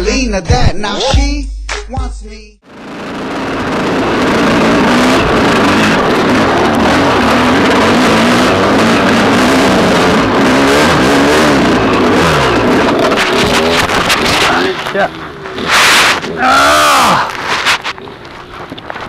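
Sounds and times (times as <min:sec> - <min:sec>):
dirt bike engine revving: 0:02.6 - 0:19.0.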